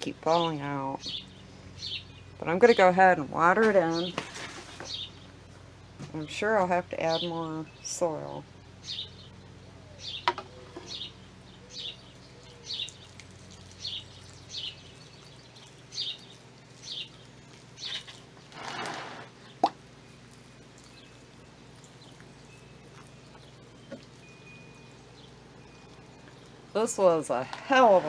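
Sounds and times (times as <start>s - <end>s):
songbird chirping: 0.0s - 18.2s, 19.4s - 28.0s
water pouring onto soil: 12.1s - 24.2s.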